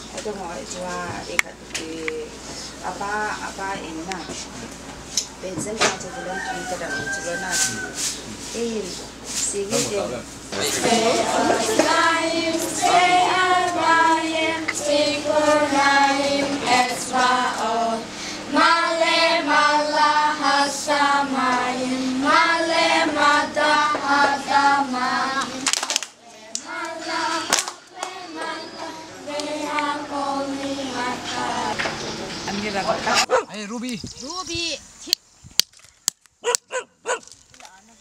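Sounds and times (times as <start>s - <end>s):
children singing in unison: 10.6s - 32.2s.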